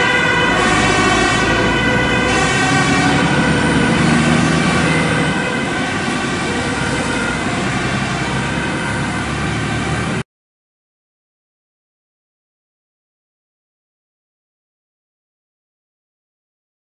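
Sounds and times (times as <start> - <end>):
fire engine siren: 0.0 - 10.2
engine and road noise: 0.0 - 10.3.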